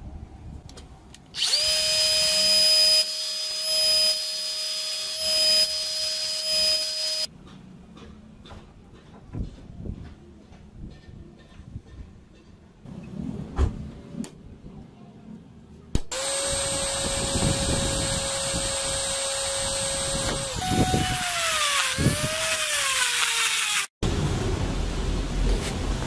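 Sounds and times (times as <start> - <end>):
electric drill boring into metal: 1.4 - 7.3, 16.0 - 23.9.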